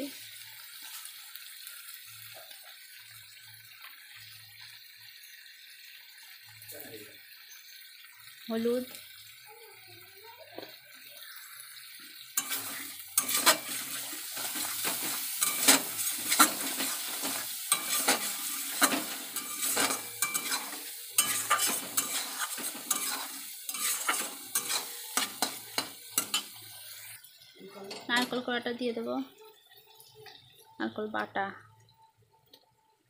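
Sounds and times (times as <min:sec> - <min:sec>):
spice paste sizzling in oil: 0:00.0 - 0:33.0
metal spatula scraping a pan: 0:12.4 - 0:27.2.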